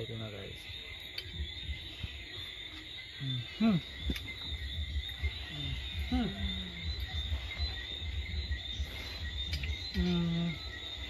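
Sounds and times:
crickets trilling: 0.0s - 11.0s
person murmuring: 3.2s - 4.0s.

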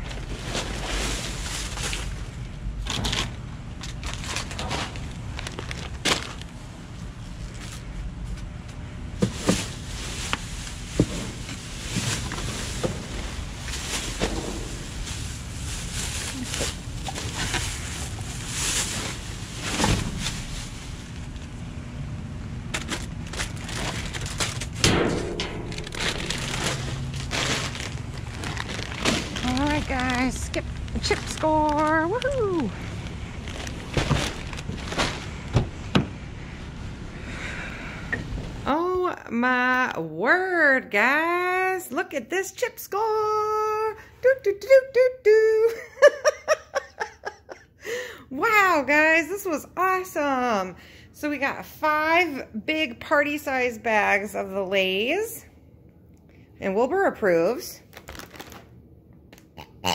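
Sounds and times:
plastic bags crinkling: 0.0s - 6.6s, 9.2s - 21.6s, 22.7s - 24.9s, 25.6s - 35.9s, 57.8s - 58.8s
steady low rumble: 0.0s - 39.5s.

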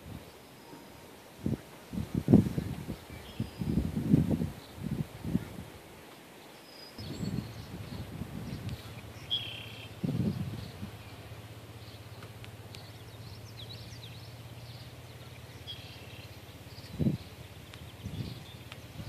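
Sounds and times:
birds chirping: 0.0s - 19.0s
steady low hum: 7.0s - 19.0s.

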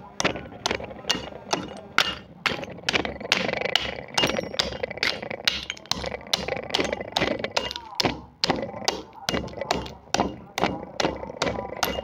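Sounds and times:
clay cracking: 0.0s - 12.0s
pestle pounding clay shards: 0.0s - 12.0s.

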